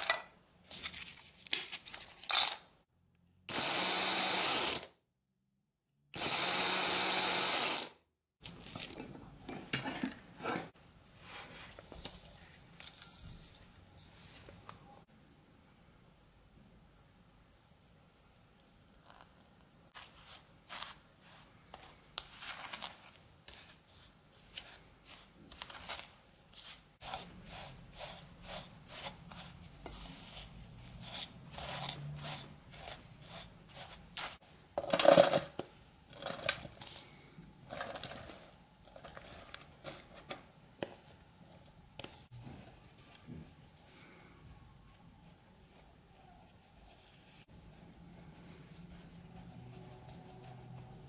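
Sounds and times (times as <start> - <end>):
wooden spoon scraping crumbs in bowl: 20.0 - 35.2.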